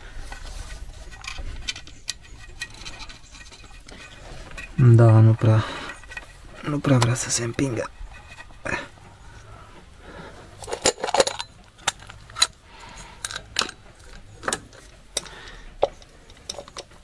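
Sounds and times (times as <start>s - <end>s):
metallic clicks and clinks: 10.6s - 12.6s, 13.2s - 17.0s.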